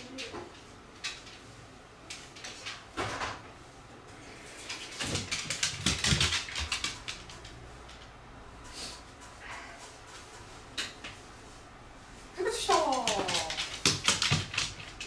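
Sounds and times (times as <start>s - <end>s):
dog claws clicking on wooden floor: 4.6s - 8.1s, 12.6s - 15.0s.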